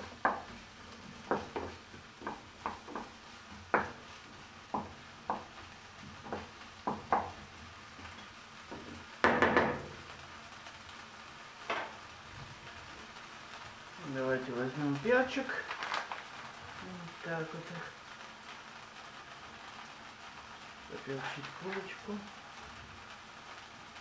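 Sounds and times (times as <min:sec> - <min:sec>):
wooden spatula scraping a pan: 0:00.0 - 0:10.0
onions frying in a pan: 0:00.0 - 0:24.0.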